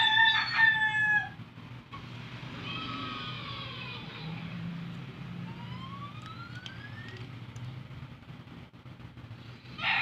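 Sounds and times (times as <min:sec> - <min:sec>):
distant rooster crowing: 0:00.0 - 0:01.5, 0:09.7 - 0:10.0.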